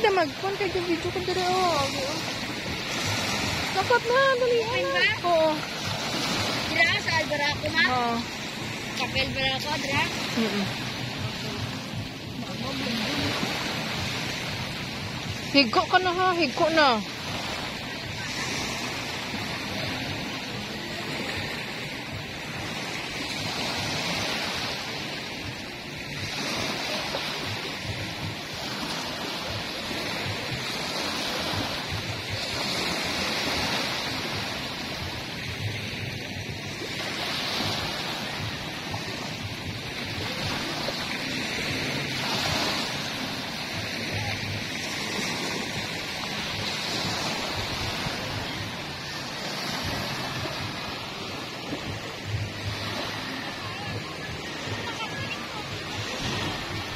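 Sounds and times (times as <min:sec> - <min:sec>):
small waves breaking on beach: 0:00.0 - 0:56.9.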